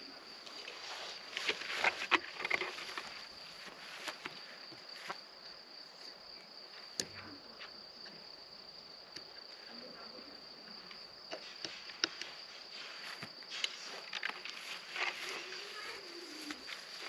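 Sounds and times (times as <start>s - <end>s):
insect chirring: 0.0s - 17.0s.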